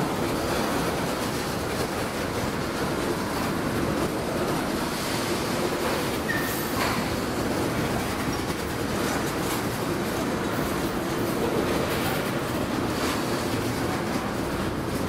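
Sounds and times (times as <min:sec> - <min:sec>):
freight train rolling past: 0:00.0 - 0:15.0
high wheel squeal: 0:06.3 - 0:06.8.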